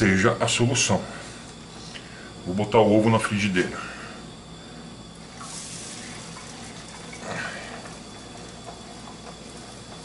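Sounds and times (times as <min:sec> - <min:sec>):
egg sizzling in frying pan: 0:05.3 - 0:07.2.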